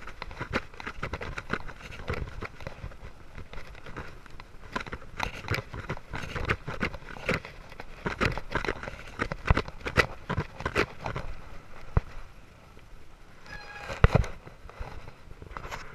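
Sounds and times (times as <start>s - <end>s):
bicycle rattling on rough pavement: 0.0s - 12.4s.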